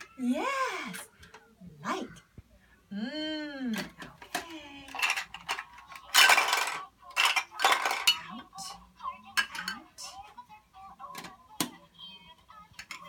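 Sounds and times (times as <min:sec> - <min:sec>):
plastic toy pieces clattering: 0:03.8 - 0:08.4, 0:12.8 - 0:13.0.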